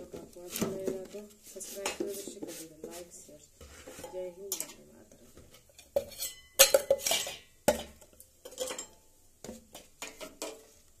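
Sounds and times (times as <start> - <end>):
metal containers clattering: 3.7 - 10.8.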